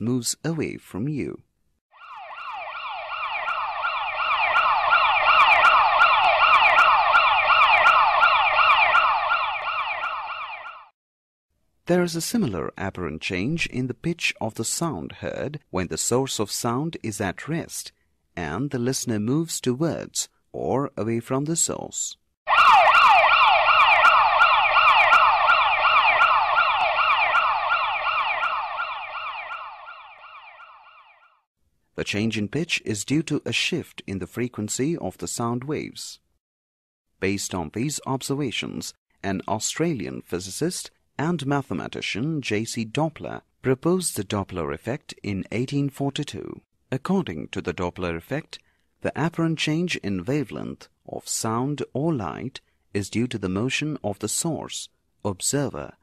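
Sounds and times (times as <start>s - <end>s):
ambulance siren wailing: 2.0s - 11.0s, 22.5s - 31.5s.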